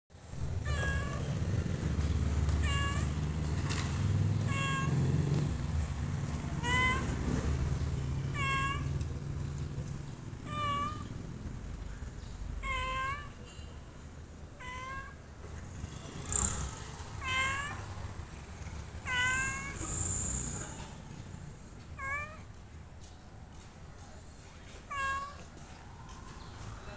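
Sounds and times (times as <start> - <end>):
cat meowing: 0.4 - 5.6, 6.2 - 9.2, 9.8 - 11.3, 12.1 - 13.5, 14.5 - 15.3, 16.6 - 21.0, 21.6 - 22.5, 24.8 - 25.6.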